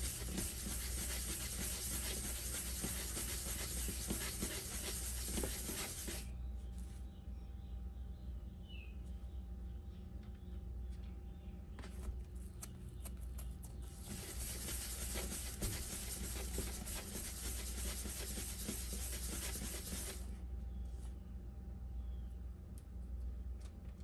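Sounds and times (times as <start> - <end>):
dough rubbing on cutting board: 0.0 - 6.3, 14.0 - 20.2.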